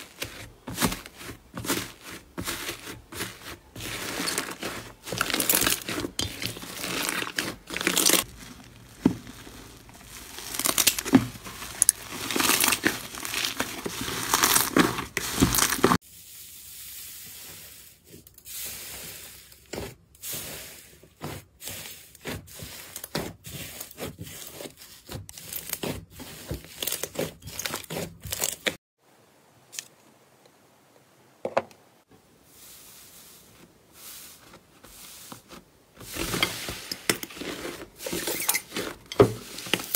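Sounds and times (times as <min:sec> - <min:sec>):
sticky slime crackling: 0:00.0 - 0:16.0.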